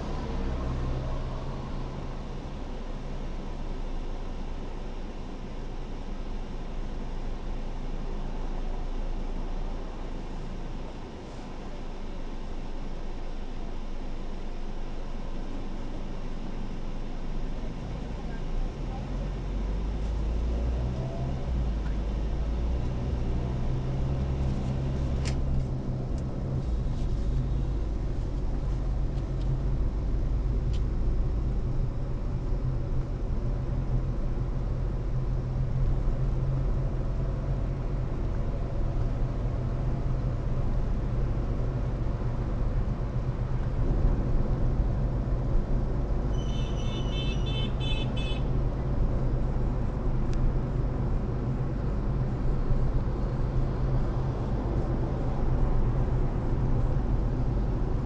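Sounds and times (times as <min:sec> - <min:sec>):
car engine and tyre rumble: 0:00.0 - 0:58.0
car horn short beeps: 0:46.3 - 0:48.5.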